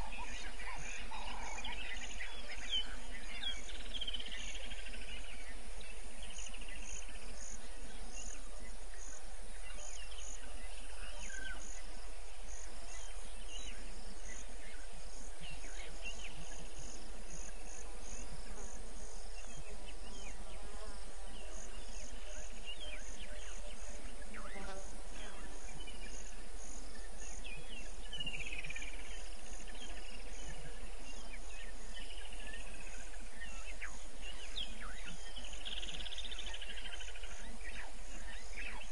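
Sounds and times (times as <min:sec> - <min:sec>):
falling bird calls: 0:00.0 - 0:18.7
insect chirping: 0:00.0 - 0:38.9.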